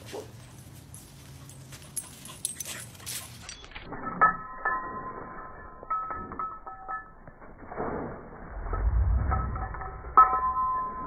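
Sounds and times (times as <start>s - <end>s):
light clicks and jingles: 0.4s - 7.6s.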